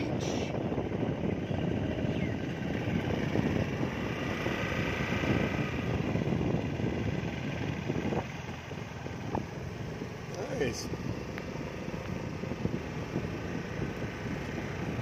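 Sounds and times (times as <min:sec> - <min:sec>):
scooter engine hum: 0:00.0 - 0:15.0
wind on microphone: 0:00.0 - 0:15.0.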